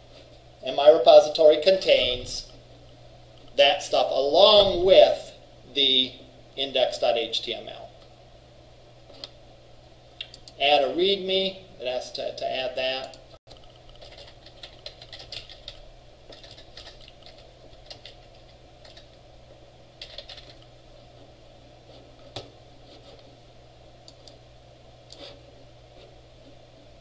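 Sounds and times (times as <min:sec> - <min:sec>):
steady low hum: 0:00.0 - 0:27.0
typing on computer keyboard: 0:13.5 - 0:19.1, 0:20.0 - 0:20.7.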